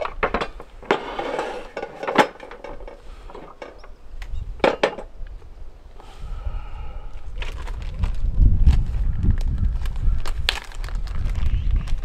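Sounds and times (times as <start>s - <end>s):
cookware scraping: 0.8s - 2.8s.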